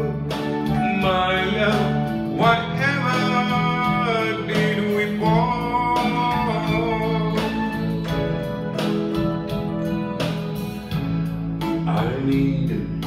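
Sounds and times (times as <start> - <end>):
electric guitar melody: 0.0 - 13.0
sustained keyboard chords: 0.0 - 13.0.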